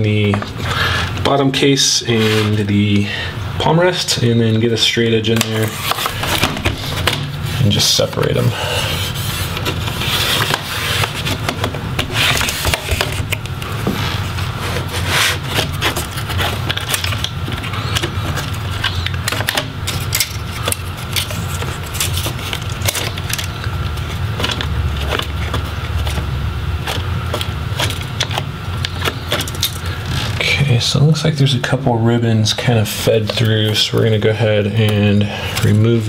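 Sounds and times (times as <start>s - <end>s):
plastic scraping: 5.3s - 30.5s.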